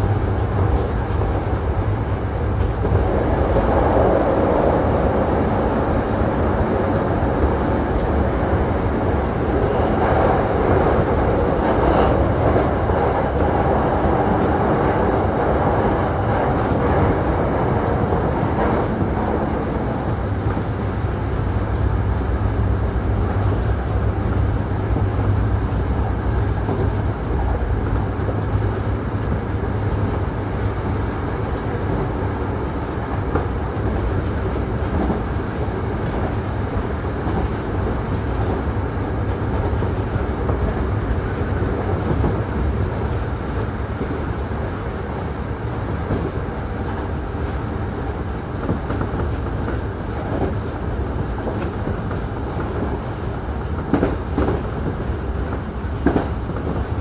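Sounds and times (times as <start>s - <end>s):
train wheels rumbling on rail: 0.0s - 57.0s.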